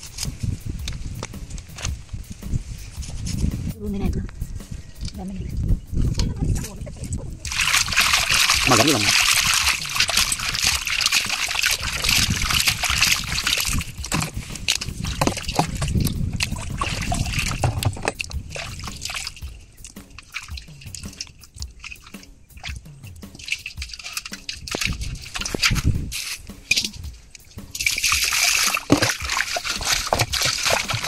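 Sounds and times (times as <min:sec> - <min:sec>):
water sloshing and trickling: 0:06.0 - 0:31.0
water splashes: 0:06.5 - 0:31.0.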